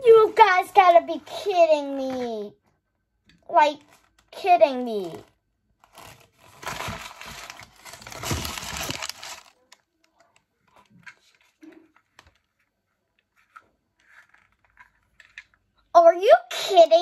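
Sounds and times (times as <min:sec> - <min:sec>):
plastic wrapper crinkling and tearing: 0:03.7 - 0:11.6.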